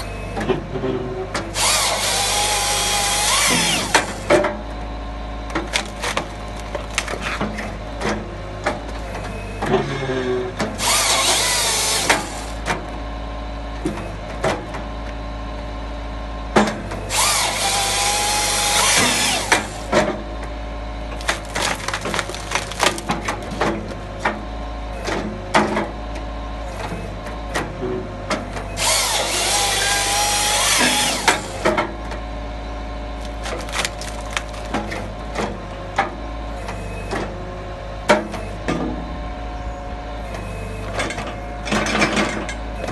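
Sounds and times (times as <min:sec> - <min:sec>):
excavator engine running: 0:00.0 - 0:42.9
hydraulic saw cutting log: 0:00.8 - 0:04.6, 0:05.5 - 0:08.2, 0:09.6 - 0:12.8, 0:16.6 - 0:20.2, 0:21.1 - 0:24.4, 0:28.3 - 0:32.0, 0:33.2 - 0:36.1
wood splitting and falling: 0:05.5 - 0:08.2, 0:16.6 - 0:20.2, 0:21.1 - 0:24.4, 0:28.8 - 0:31.9, 0:33.2 - 0:35.6.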